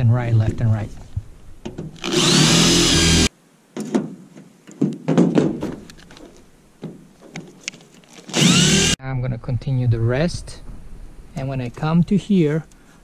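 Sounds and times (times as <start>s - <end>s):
electric drill boring metal: 2.0s - 3.3s, 8.3s - 9.0s.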